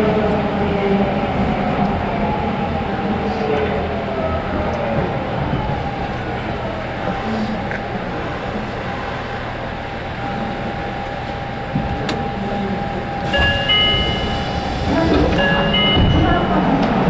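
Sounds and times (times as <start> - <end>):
subway train rumble and whine: 0.0 - 17.0.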